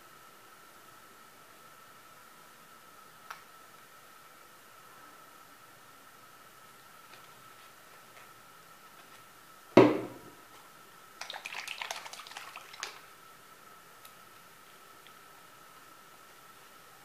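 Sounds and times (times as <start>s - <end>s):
faint high hum: 0.0s - 17.0s
sharp knock: 9.8s - 10.2s.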